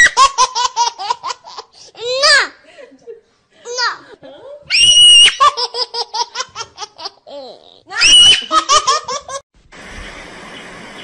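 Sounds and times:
girl laughing: 0:05.3 - 0:09.4
faint steady hiss: 0:09.6 - 0:11.0.

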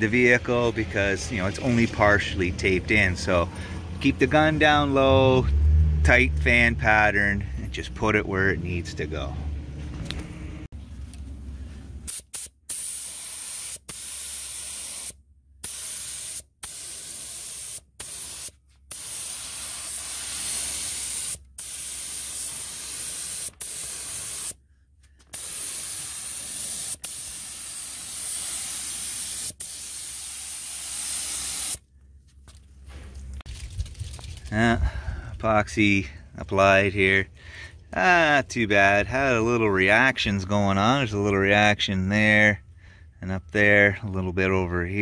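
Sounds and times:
spray gun hissing: 0:12.1 - 0:24.6, 0:25.3 - 0:31.8.

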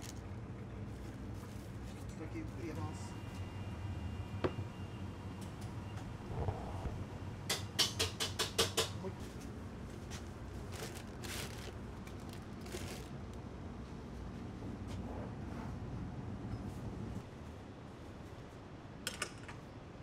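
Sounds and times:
steady low hum: 0:00.0 - 0:07.8
paper packets rustling: 0:09.9 - 0:13.3.

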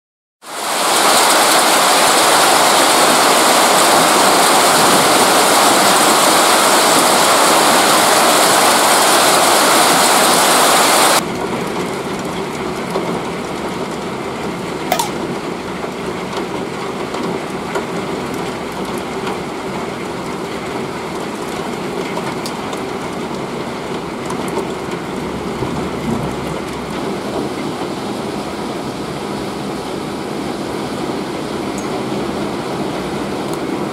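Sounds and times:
downpour hiss: 0:00.5 - 0:11.2
heavy hail and rain roar: 0:00.5 - 0:33.9
single click: 0:14.9 - 0:15.2.

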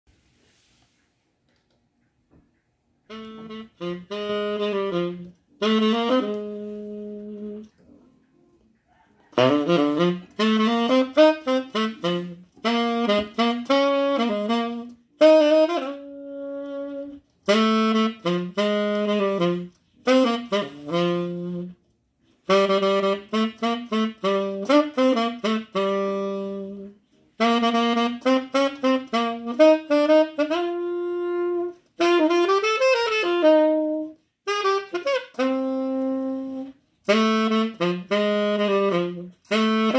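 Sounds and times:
saxophone jazz melody: 0:02.9 - 0:39.9.

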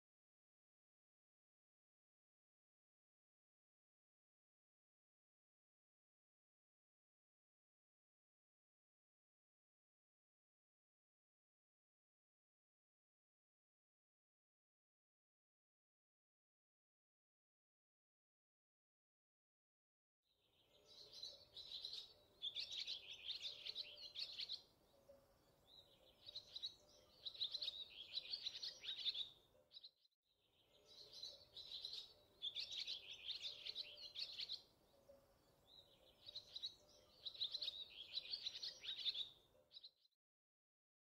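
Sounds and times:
small birds chirping: 0:20.4 - 0:40.2
faint steady tone: 0:20.7 - 0:29.7, 0:30.5 - 0:39.7.

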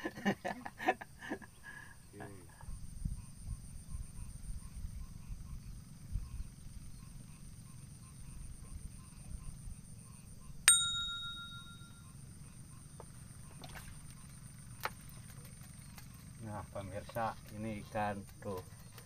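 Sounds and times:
steady high hum: 0:02.7 - 0:13.7
bite alarm bell ringing: 0:10.7 - 0:12.2.

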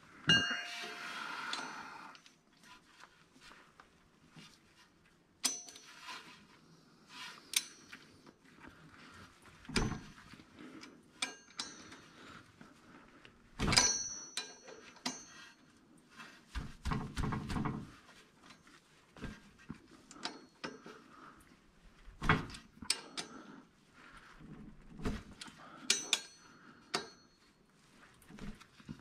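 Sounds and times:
metal scraping: 0:00.3 - 0:01.9
metal tools clinking on steel: 0:00.3 - 0:01.9, 0:05.4 - 0:06.0, 0:11.2 - 0:12.1, 0:13.8 - 0:15.5, 0:25.8 - 0:27.3.

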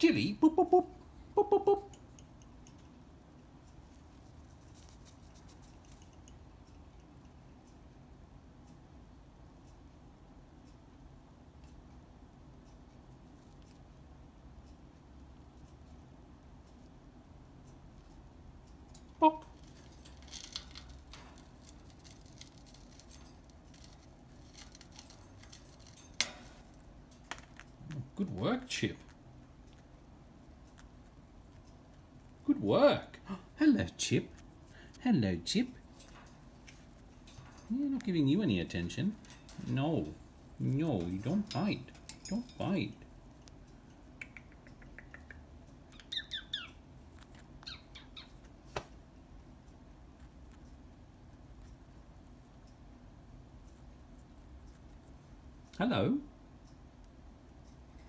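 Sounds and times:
parrot chirping: 0:00.4 - 0:02.9, 0:43.7 - 0:48.6
soft ticks: 0:01.9 - 0:28.1, 0:29.0 - 0:32.4, 0:35.5 - 0:48.6, 0:49.2 - 0:58.0
bird clicking and scratching on cage: 0:03.7 - 0:07.8, 0:17.9 - 0:28.0, 0:28.6 - 0:32.4, 0:34.3 - 0:48.9.

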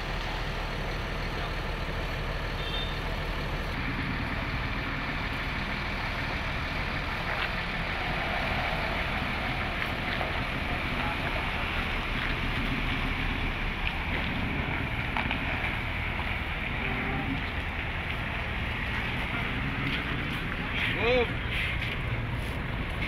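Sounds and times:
diesel bus engine running: 0:00.0 - 0:23.0.

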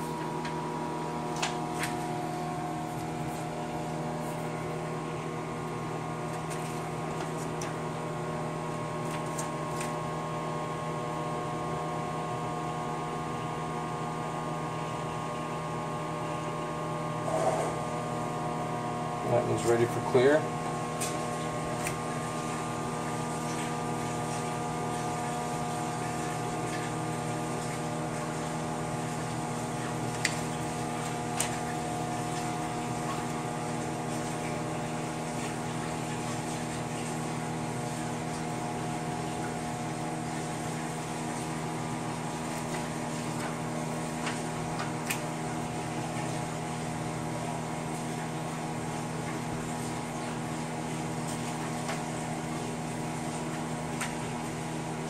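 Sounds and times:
microwave oven humming: 0:00.0 - 0:55.0.

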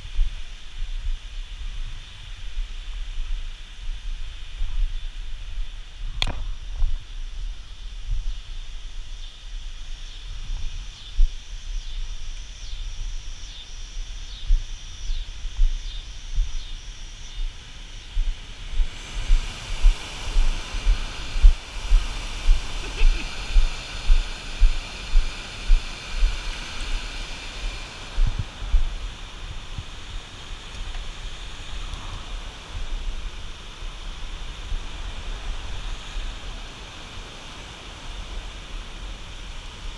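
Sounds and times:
whitewater rushing through dam: 0:18.8 - 0:39.9.

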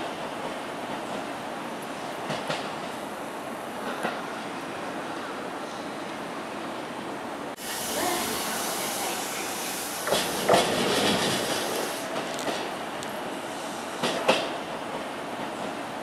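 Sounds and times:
train wheels clacking on rail joints: 0:10.0 - 0:13.1, 0:14.0 - 0:15.8.

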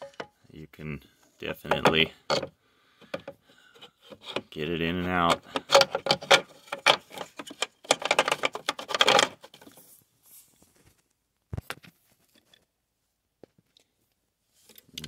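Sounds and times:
plastic and metal clattering: 0:00.0 - 0:00.4, 0:01.6 - 0:09.9.

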